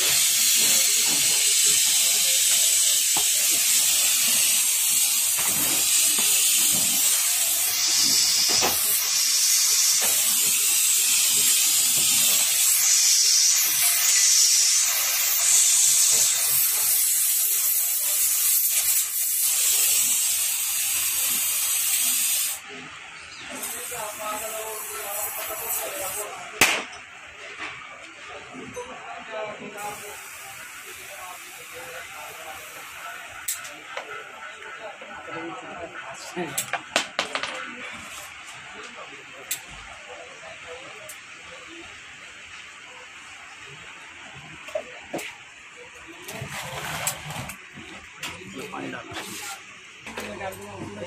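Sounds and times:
blowtorch flame hissing: 0:00.0 - 0:26.5, 0:29.8 - 0:33.8.

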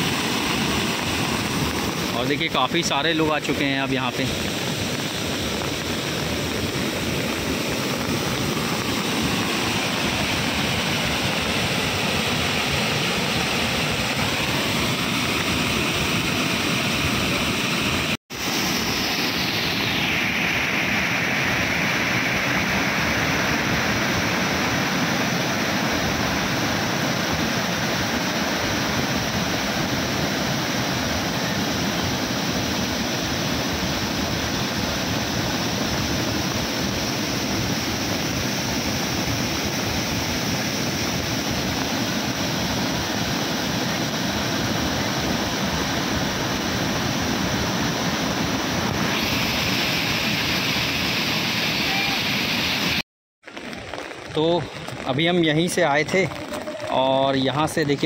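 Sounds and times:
waterfall rushing: 0:00.0 - 0:53.0, 0:53.6 - 0:58.0.

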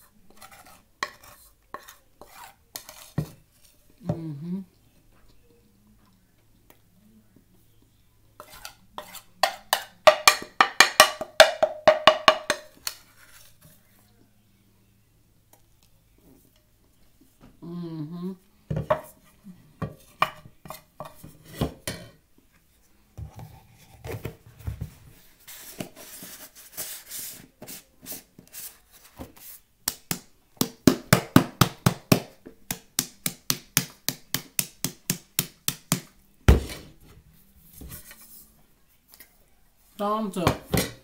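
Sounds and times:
cornstarch rustling: 0:25.4 - 0:29.7.

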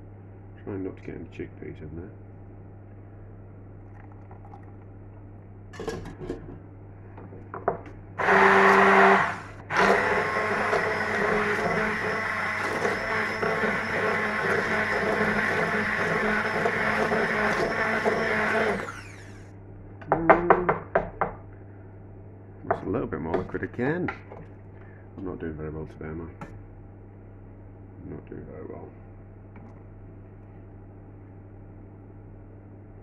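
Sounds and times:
electric blender running: 0:08.2 - 0:19.5.

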